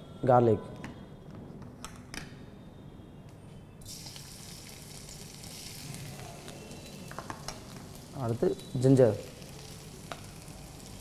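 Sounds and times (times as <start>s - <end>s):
garlic sizzling in hot oil: 3.8s - 11.0s.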